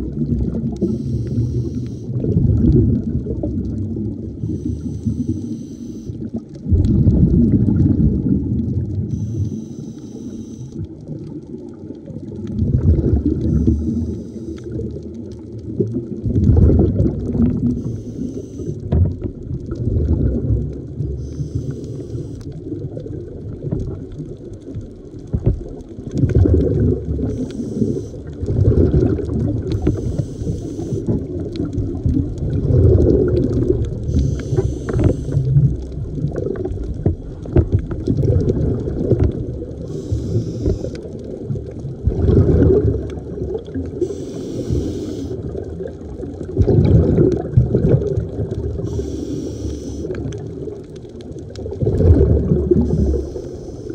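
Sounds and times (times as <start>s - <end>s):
gurgling exhaled bubbles: 0.0s - 9.6s, 10.2s - 53.9s
regulator hissing inhale: 0.9s - 2.1s, 4.4s - 6.2s, 9.1s - 10.8s, 13.5s - 14.7s, 17.8s - 18.8s, 21.2s - 22.4s, 27.4s - 28.2s, 29.8s - 31.1s, 34.0s - 35.5s, 39.8s - 41.0s, 44.0s - 45.5s, 48.8s - 50.2s, 52.8s - 53.9s.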